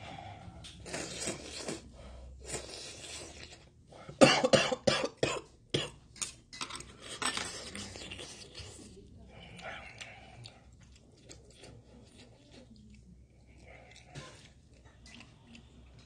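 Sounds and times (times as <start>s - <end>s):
man coughing: 4.2s - 5.9s.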